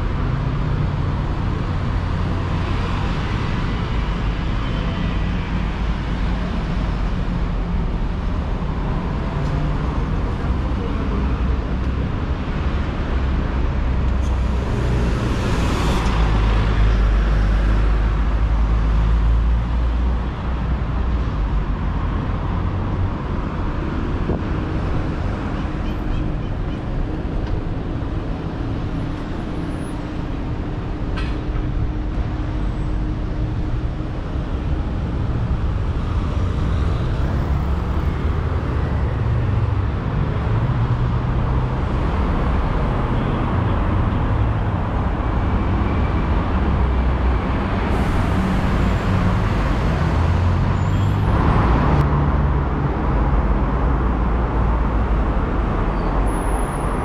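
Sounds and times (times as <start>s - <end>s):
road traffic: 0.0s - 57.0s.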